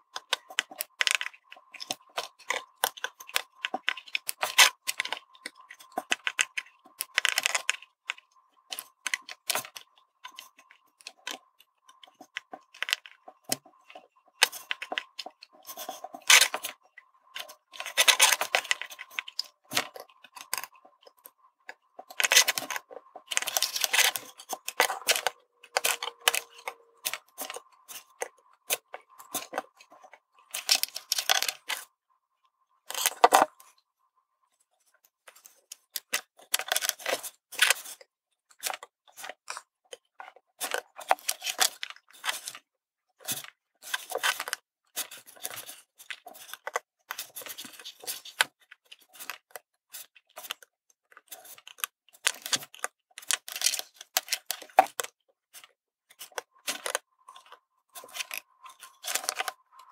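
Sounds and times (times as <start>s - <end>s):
tools clicking and scraping: 8.7s - 31.9s.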